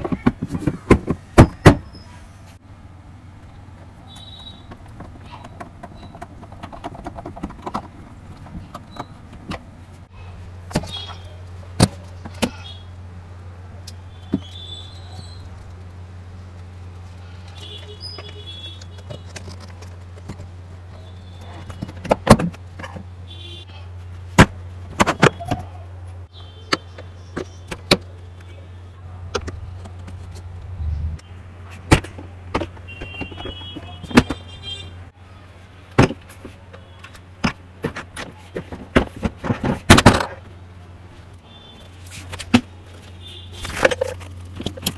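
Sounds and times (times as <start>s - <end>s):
steady low hum: 0.3s - 32.9s.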